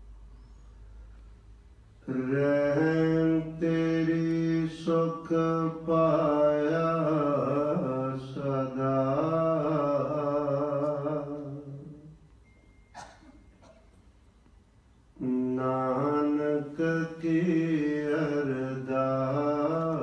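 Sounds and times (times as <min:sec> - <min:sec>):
man chanting a devotional melody: 0:02.1 - 0:12.1, 0:15.2 - 0:20.0.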